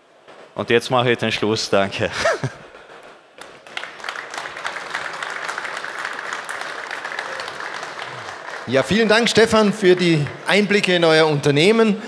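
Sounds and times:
audience applauding: 0:03.4 - 0:11.4.

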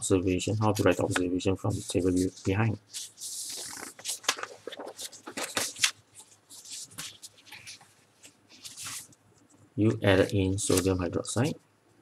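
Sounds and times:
paper pages being flipped: 0:00.6 - 0:09.2, 0:10.1 - 0:11.0.

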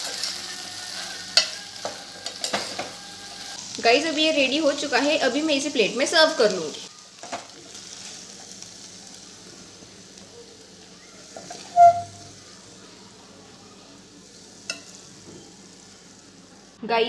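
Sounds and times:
low sizzle from pan: 0:00.0 - 0:17.0.

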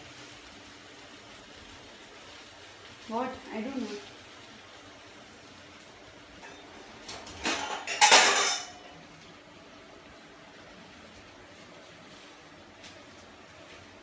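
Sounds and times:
steel kitchen utensils clattering: 0:06.4 - 0:08.9.

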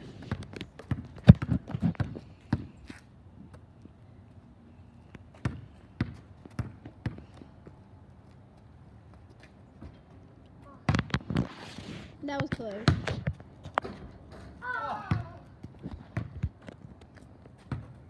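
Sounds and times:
basketball bouncing on concrete: 0:00.1 - 0:03.6, 0:05.3 - 0:07.8, 0:10.7 - 0:11.4, 0:12.2 - 0:18.0.

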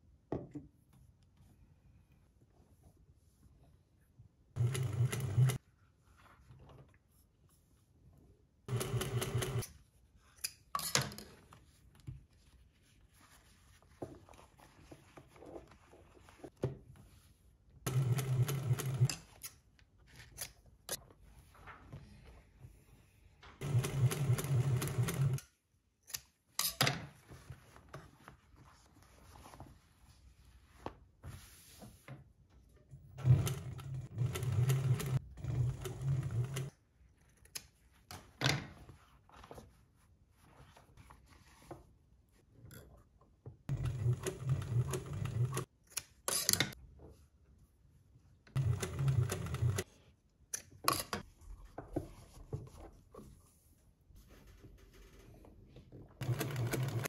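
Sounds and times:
sewing machine stitching: 0:04.6 - 0:05.6, 0:08.7 - 0:09.7, 0:17.9 - 0:19.1, 0:23.6 - 0:25.4, 0:33.2 - 0:36.7, 0:43.7 - 0:45.7, 0:48.5 - 0:49.8, 0:56.2 - 0:57.0.

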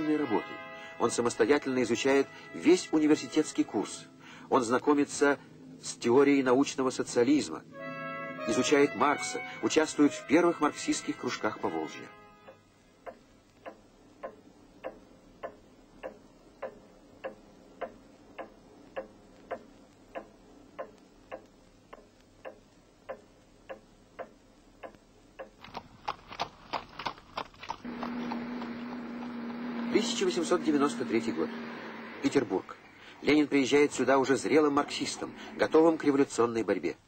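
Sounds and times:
steady hum: 0:11.1 - 0:25.5, 0:27.9 - 0:37.0
pendulum wall clock ticking: 0:12.4 - 0:25.6, 0:29.5 - 0:36.6
horse hooves clopping on street: 0:25.6 - 0:30.4
street noise: 0:27.8 - 0:36.4.

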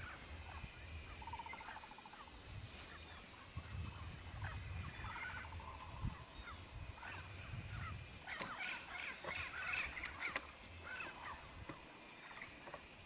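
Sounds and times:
birds chirping and squawking: 0:00.0 - 0:12.6
wind rumble on microphone: 0:02.3 - 0:08.4.

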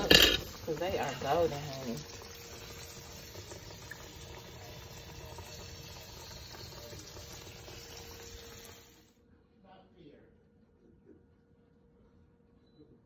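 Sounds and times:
oil sizzling in a skillet: 0:00.0 - 0:09.1.

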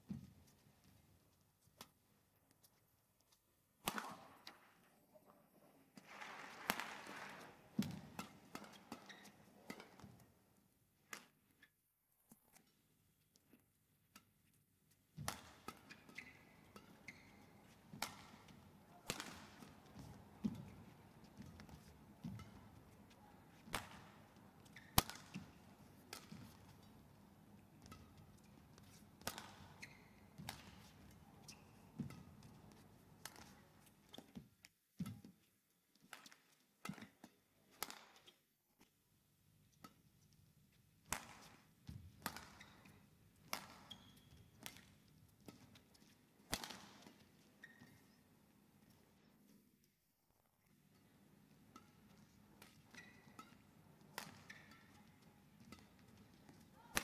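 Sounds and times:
rackets hitting shuttlecock: 0:03.8 - 0:04.7, 0:06.0 - 0:10.2, 0:15.2 - 0:35.4, 0:36.0 - 0:38.3, 0:41.0 - 0:48.2, 0:50.9 - 0:57.0.

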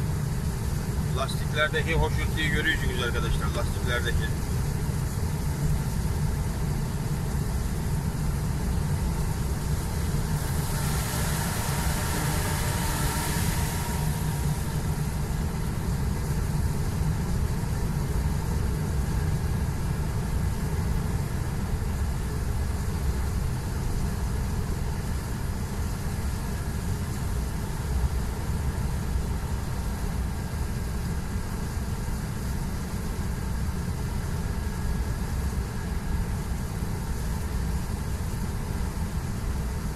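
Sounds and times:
truck engine drone: 0:00.0 - 0:06.1, 0:06.8 - 0:18.9
wet-road tyre noise: 0:09.8 - 0:16.4.

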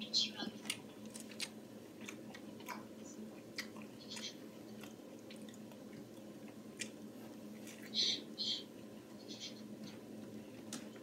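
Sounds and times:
wet chewing: 0:00.6 - 0:08.0.

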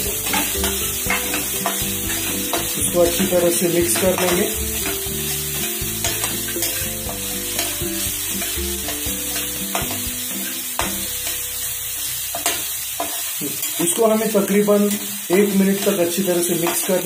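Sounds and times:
spatula scraping pan: 0:00.0 - 0:11.4
faint background music: 0:00.0 - 0:17.0
food sizzling in oil: 0:00.0 - 0:17.0.

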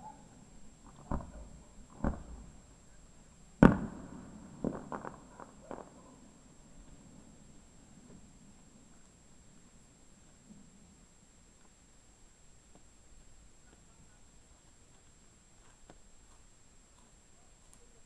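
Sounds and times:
fireworks bangs: 0:00.8 - 0:02.8, 0:03.6 - 0:07.4
small firework pops: 0:00.9 - 0:02.6, 0:03.6 - 0:06.2.

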